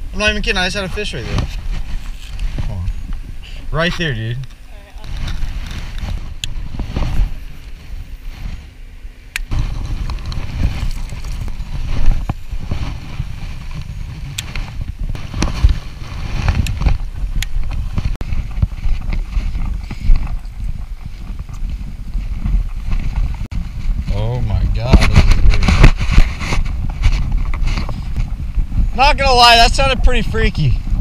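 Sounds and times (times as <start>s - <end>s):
wind buffeting camera: 0.0s - 31.0s.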